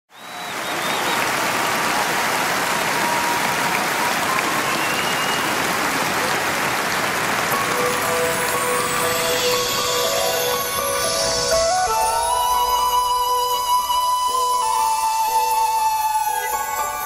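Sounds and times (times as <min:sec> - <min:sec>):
audience applauding: 0:00.1 - 0:17.0
held musical notes: 0:07.4 - 0:17.0.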